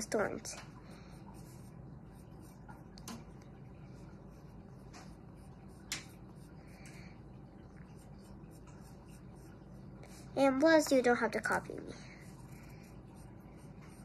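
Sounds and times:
low room hum: 0.0 - 14.0
pencil sketching on paper: 1.0 - 2.9, 4.0 - 6.9, 7.9 - 11.0, 12.0 - 14.0.

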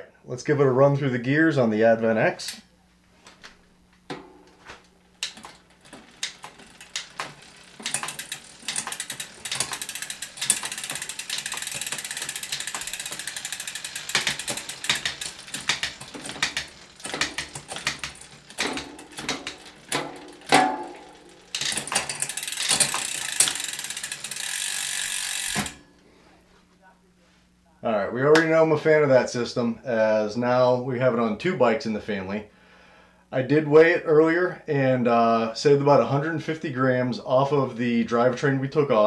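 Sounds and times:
bicycle freewheel ratchet buzzing: 4.1 - 25.9
bicycle chain running: 5.0 - 25.8.

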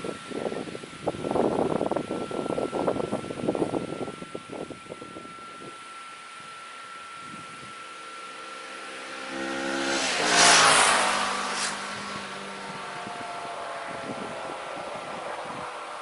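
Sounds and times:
motorcycle passing at speed: 8.0 - 16.0.

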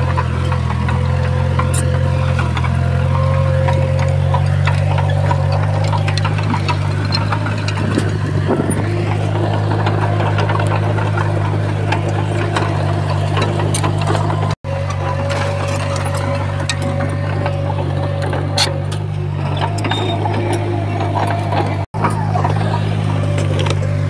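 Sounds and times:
bulldozer diesel engine running: 0.0 - 24.0.

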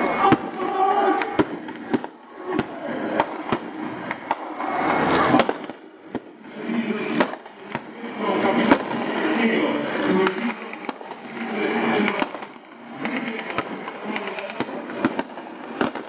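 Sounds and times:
rifle shots: 5.2 - 6.3.

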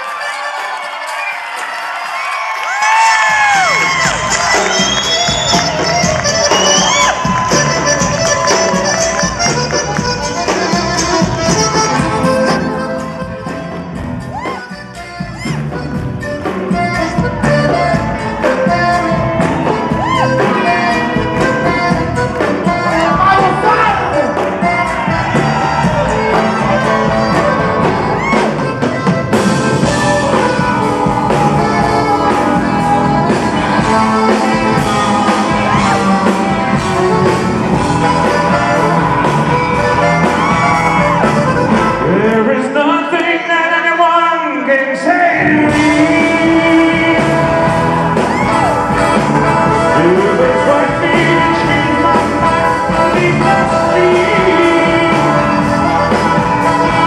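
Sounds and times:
live rock and roll band: 0.0 - 57.0
bending sliding guitar line: 3.0 - 42.7, 45.4 - 57.0
man singing: 16.8 - 28.2, 41.9 - 48.2, 49.6 - 57.0.

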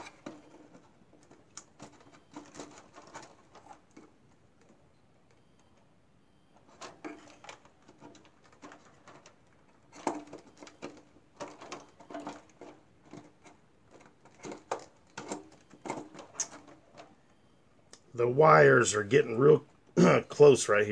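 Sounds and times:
plastic and metal parts clicking: 0.0 - 5.8, 6.6 - 17.2.

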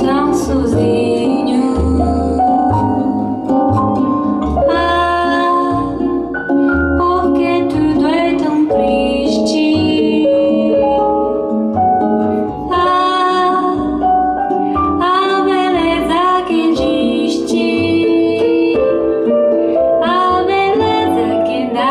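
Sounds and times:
woman singing: 0.0 - 3.6, 4.6 - 11.3, 12.7 - 14.0, 14.8 - 19.3, 19.9 - 21.9
piano: 0.0 - 21.9.

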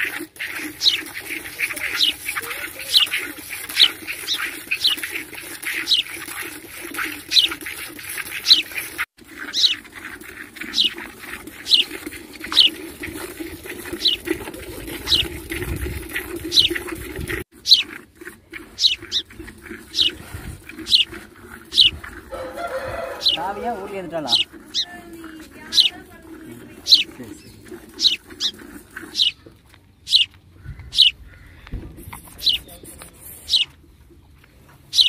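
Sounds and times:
milk squirting into pail: 0.0 - 29.6.

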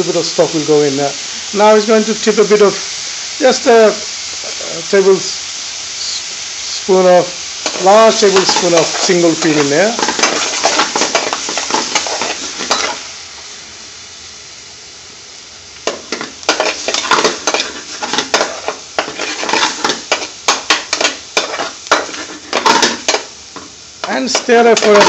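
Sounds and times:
pan sizzling: 0.0 - 25.0
metal spoon scraping a pan: 7.6 - 13.0, 15.9 - 25.0.

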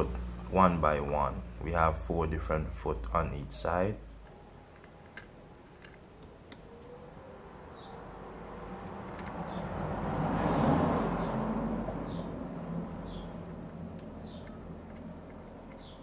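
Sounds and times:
vehicle passing: 6.6 - 16.0.

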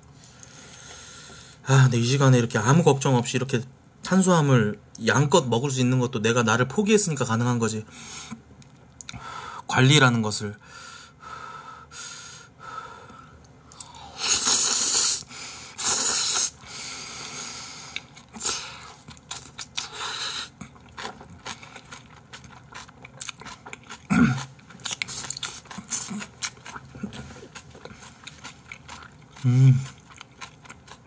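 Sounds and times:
chewing with wet mouth clicks: 8.6 - 9.2, 17.9 - 20.0, 20.6 - 31.0
person slurping noodles: 14.0 - 20.6.

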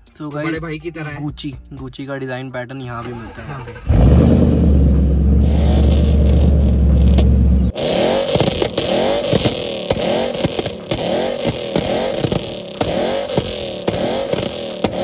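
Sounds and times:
engine throttle blips: 3.0 - 15.0
exhaust crackles: 3.0 - 15.0
car engine idling deeply: 3.1 - 15.0.

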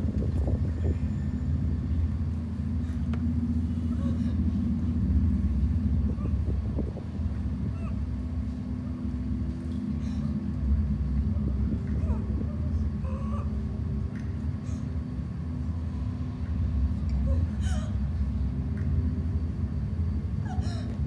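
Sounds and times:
faint hum: 0.0 - 21.0
low rumble: 0.0 - 21.0.

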